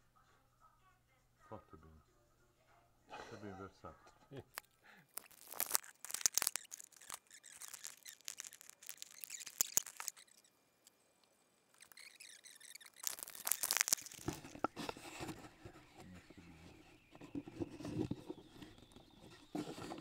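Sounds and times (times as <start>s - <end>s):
rustling: 4.5s - 20.0s.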